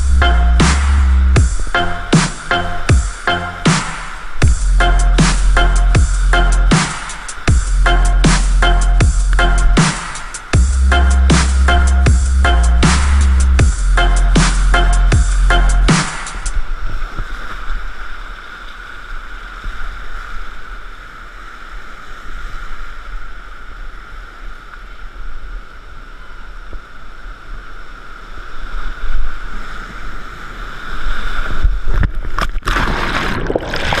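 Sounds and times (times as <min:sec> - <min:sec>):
rushing whitewater: 0:00.0 - 0:31.3
water splashing over boat: 0:31.5 - 0:34.0.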